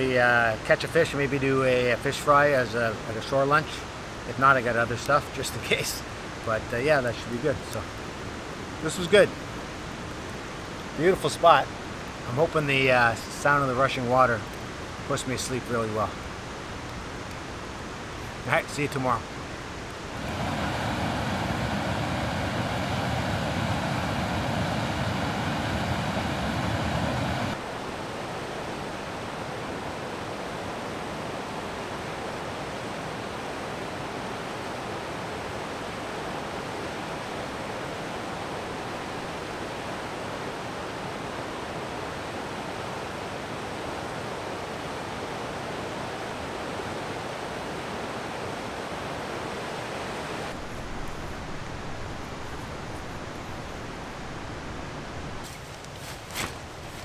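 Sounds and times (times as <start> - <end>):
river rapids rushing: 17.8 - 50.6.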